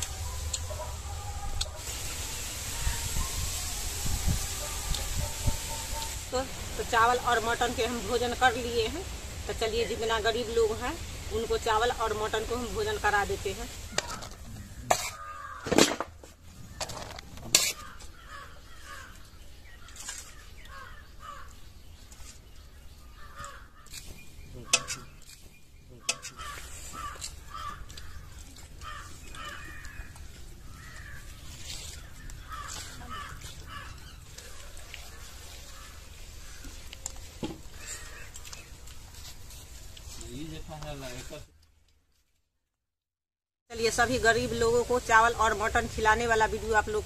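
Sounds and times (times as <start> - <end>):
birds calling: 12.0 - 39.0.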